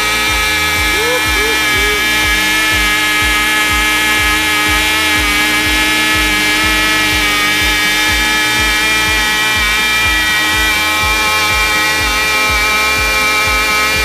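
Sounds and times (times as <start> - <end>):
model engines high-pitched whine: 0.0 - 14.0.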